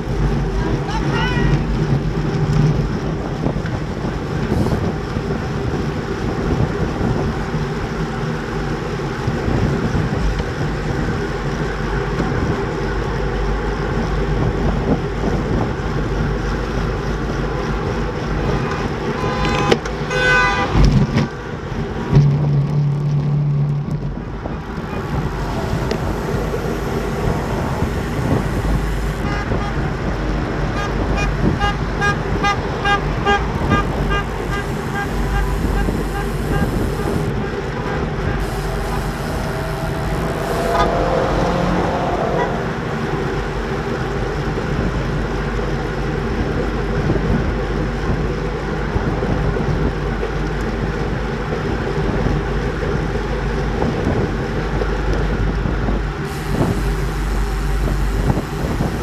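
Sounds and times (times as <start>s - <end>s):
wind and road noise: 0.0s - 59.0s
rapid ticking: 24.7s - 29.3s, 33.2s - 37.4s, 38.4s - 40.9s, 56.3s - 59.0s
brief pitched sound: 38.4s - 42.9s.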